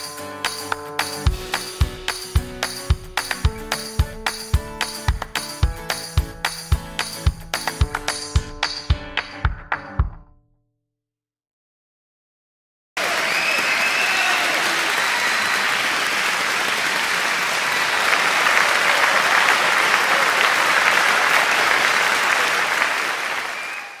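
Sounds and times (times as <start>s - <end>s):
crowd applause: 13.0s - 24.0s.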